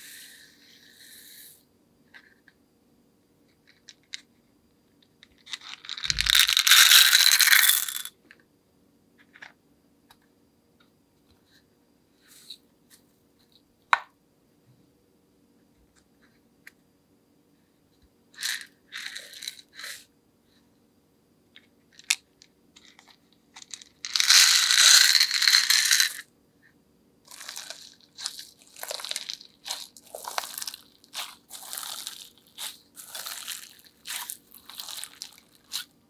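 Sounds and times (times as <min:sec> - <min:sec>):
slime crackling: 0:27.3 - 0:35.9
slime squishing crunchily: 0:27.3 - 0:35.9.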